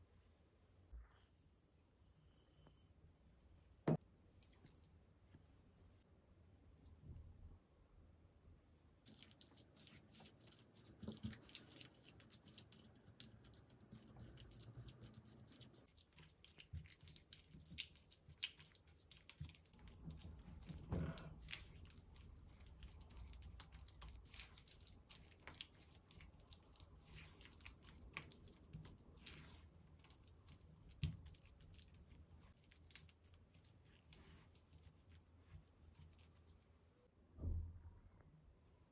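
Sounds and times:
spatula squishing and scraping: 9.1 - 36.7.

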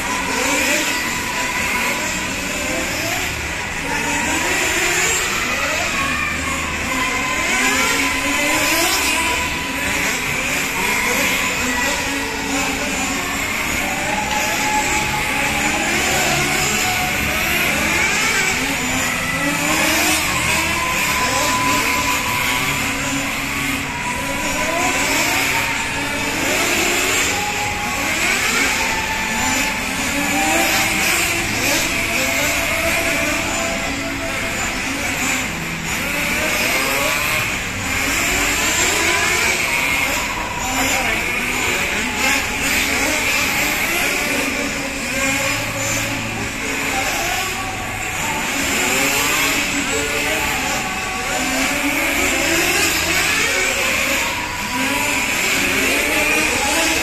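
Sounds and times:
model car engines whining: 0.0 - 57.0.

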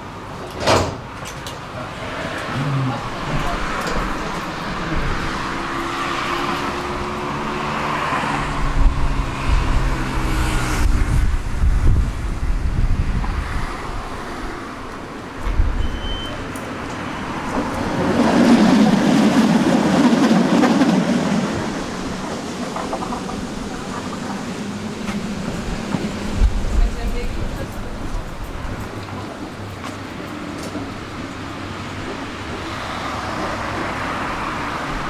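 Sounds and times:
wheels rumbling on rails: 0.0 - 35.0
short high beep: 15.8 - 16.4.

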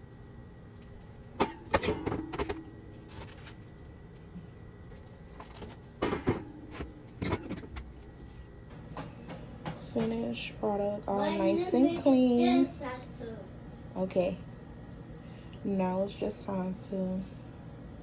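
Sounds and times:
plastic bins clattering on wire shelves: 1.4 - 3.7, 5.2 - 10.3.

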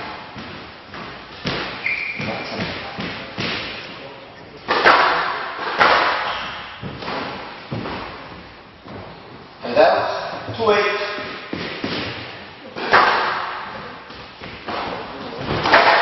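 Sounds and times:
squash ball smacks: 0.3 - 3.8, 11.3 - 16.0
shoe squeak on court: 1.8 - 2.6.

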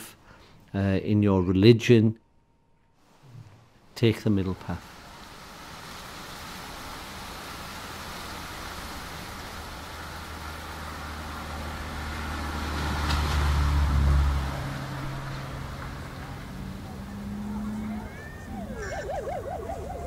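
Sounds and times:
traffic noise: 3.8 - 20.0
vehicle engine drone: 9.4 - 20.0.

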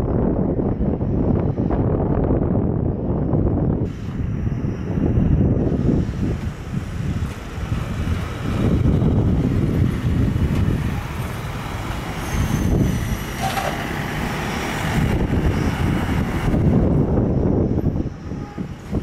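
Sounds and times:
jet engines low rumble: 0.0 - 19.0.

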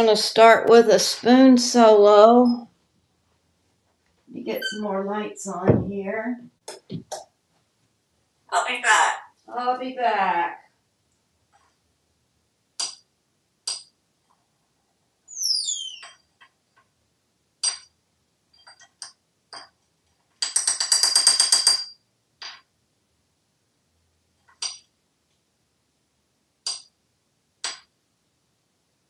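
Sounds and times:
parrot squeak: 4.5 - 4.9, 15.3 - 16.2.

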